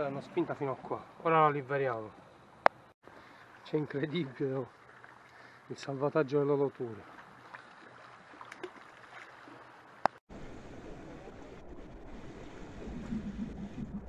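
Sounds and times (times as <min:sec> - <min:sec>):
sea lapping against rocks: 0:07.0 - 0:14.0
wind rumble on microphone: 0:10.3 - 0:14.0.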